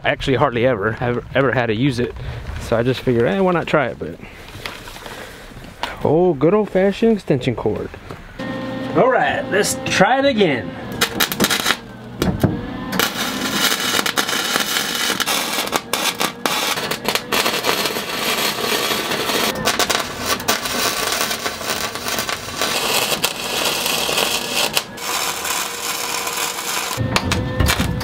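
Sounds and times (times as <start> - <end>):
welding arc crackling and sizzling: 8.4 - 10.0, 10.9 - 12.3, 12.9 - 28.0.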